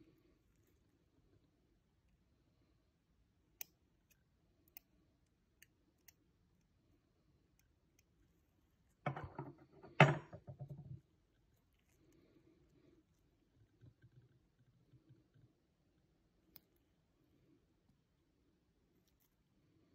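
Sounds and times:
knock: 0:09.1 - 0:11.0.

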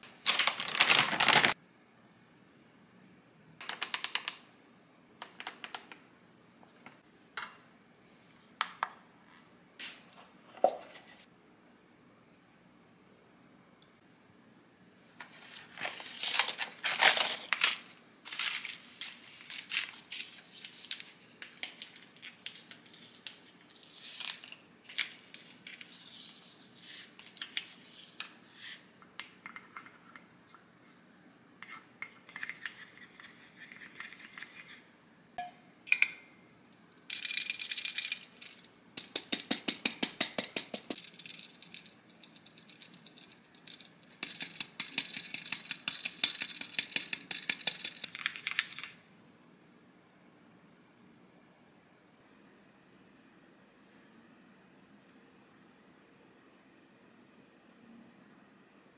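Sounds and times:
paper packets crinkling and tearing: 0:00.1 - 0:01.6, 0:15.4 - 0:26.3
metal sieve rattling over bowl: 0:37.1 - 0:48.1.

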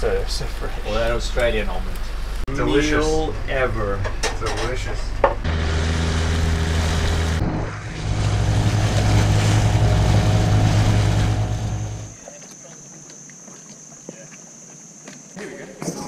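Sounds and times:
outboard motor running: 0:05.4 - 0:12.2
water rushing past: 0:05.5 - 0:12.2.

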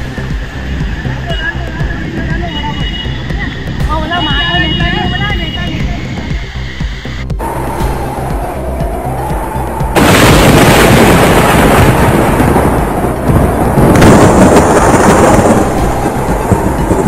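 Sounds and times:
storm wind gusting on microphone: 0:07.4 - 0:17.0.

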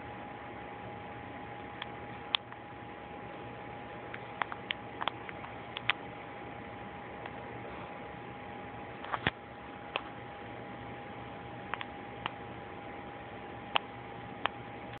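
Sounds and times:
sharp clicks: 0:04.1 - 0:06.0, 0:11.7 - 0:12.4.

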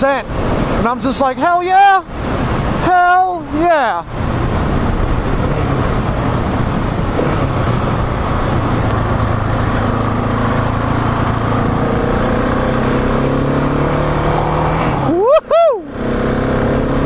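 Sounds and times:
wind rush on microphone: 0:00.0 - 0:16.2
motorcycle engine droning: 0:04.1 - 0:14.7.

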